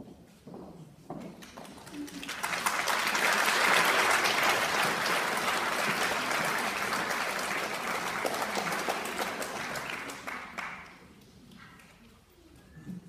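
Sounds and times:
audience applauding: 0:01.6 - 0:11.9.

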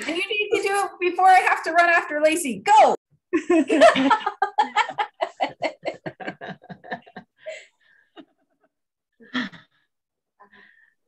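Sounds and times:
person laughing over video call: 0:03.3 - 0:07.4.

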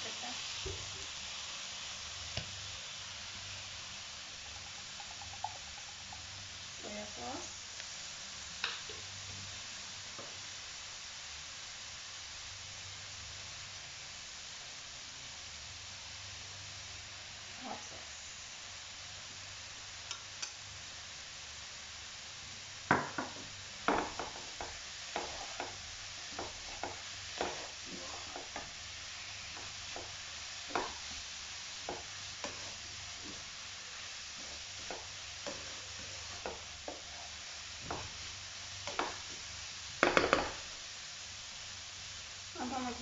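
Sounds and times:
vegetables sizzling in a wok: 0:00.0 - 0:43.0
spatula knocking and scraping pan: 0:22.9 - 0:28.8, 0:29.4 - 0:31.2, 0:31.8 - 0:33.5, 0:34.4 - 0:38.2, 0:38.8 - 0:39.4, 0:40.0 - 0:40.6.

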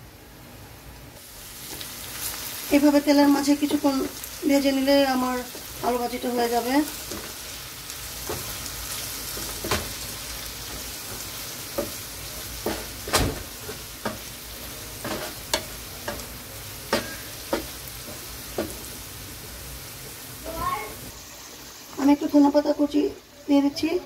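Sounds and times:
potatoes sizzling in oil: 0:01.1 - 0:24.0
wooden spatula scraping pan: 0:08.1 - 0:16.3.

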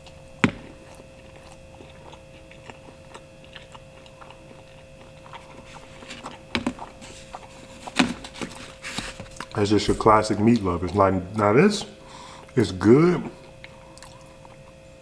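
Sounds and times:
close-up chewing with clicks: 0:00.0 - 0:08.6, 0:09.2 - 0:09.6, 0:13.3 - 0:14.9
crust crunching: 0:00.0 - 0:11.1
faint steady hum: 0:00.0 - 0:15.0.

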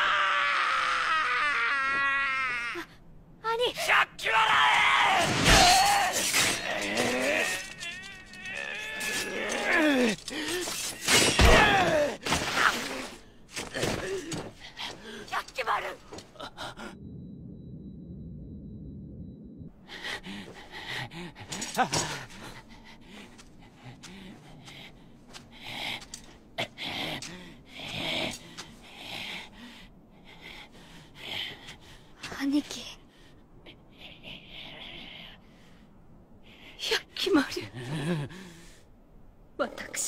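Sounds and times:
strained cries: 0:04.4 - 0:12.9.

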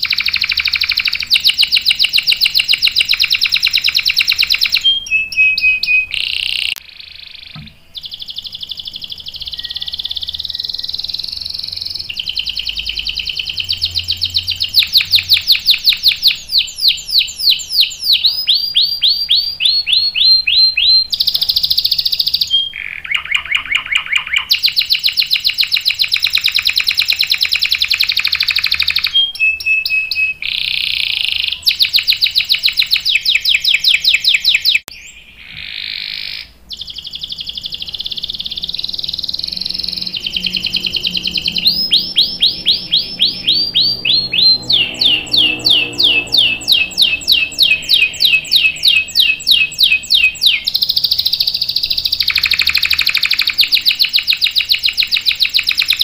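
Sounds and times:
canary singing trills: 0:00.0 - 0:56.0.

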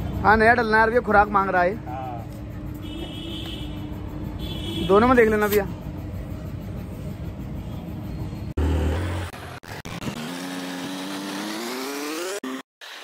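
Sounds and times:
road rumble: 0:00.0 - 0:12.6
motorcycle engine accelerating: 0:08.6 - 0:13.0.

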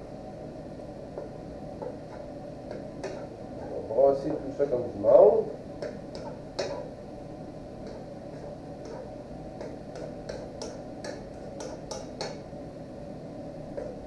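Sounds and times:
steady low hum: 0:00.0 - 0:14.0
spoon scraping frying pan: 0:01.2 - 0:03.8, 0:05.8 - 0:07.0, 0:07.8 - 0:12.5.

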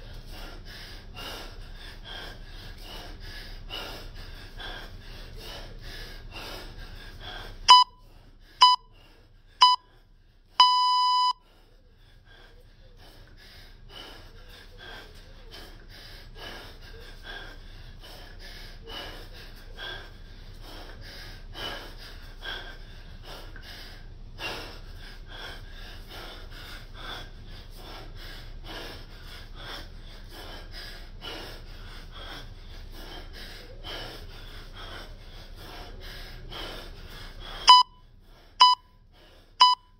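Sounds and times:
man breathing hard: 0:00.0 - 0:39.9
electronic timer beeps: 0:07.7 - 0:08.0, 0:08.6 - 0:08.9, 0:09.6 - 0:09.9, 0:10.6 - 0:11.4, 0:37.7 - 0:38.0, 0:38.6 - 0:38.9, 0:39.6 - 0:39.9.

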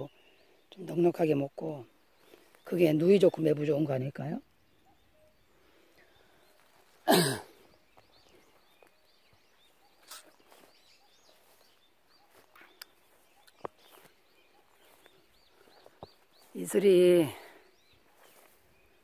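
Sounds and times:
faint bird chirps: 0:00.0 - 0:19.0
man sneezing: 0:07.1 - 0:07.5.

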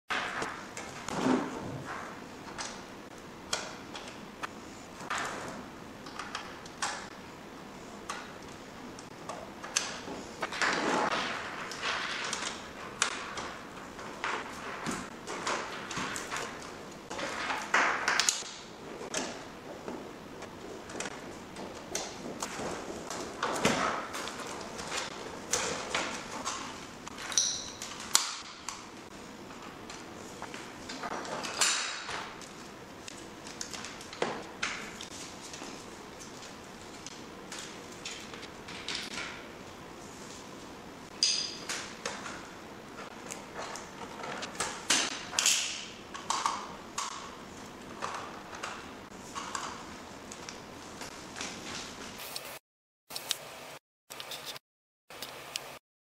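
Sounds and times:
cable connectors clicking and knocking: 0:08.1 - 0:20.0, 0:41.1 - 0:47.3.

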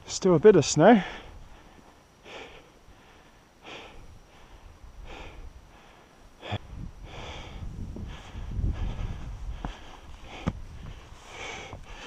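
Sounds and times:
person breathing hard: 0:01.0 - 0:12.0
wind rumble on microphone: 0:06.4 - 0:12.0.

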